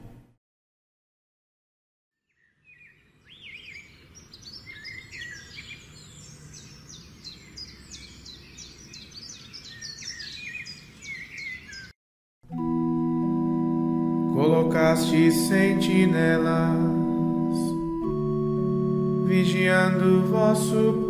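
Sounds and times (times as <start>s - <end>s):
birds singing and chirping: 2.3s - 12.0s.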